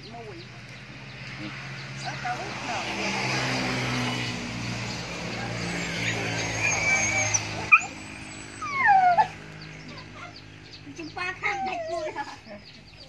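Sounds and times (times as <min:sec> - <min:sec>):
high whining animal cries: 0:05.4 - 0:09.4.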